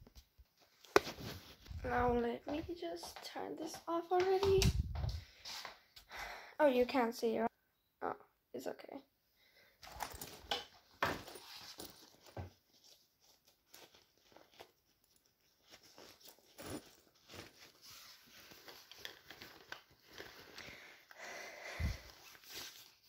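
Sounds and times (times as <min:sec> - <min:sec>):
backpack fabric rustling: 0:09.8 - 0:20.6.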